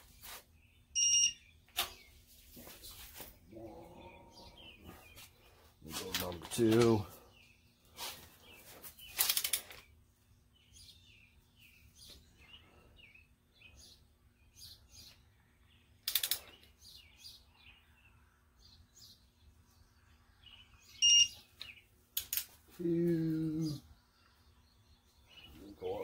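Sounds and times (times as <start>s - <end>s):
small birds chirping: 0.0s - 26.0s
electronic beep: 1.0s - 1.4s, 21.0s - 21.4s
torque wrench ratcheting clicks: 16.0s - 16.5s.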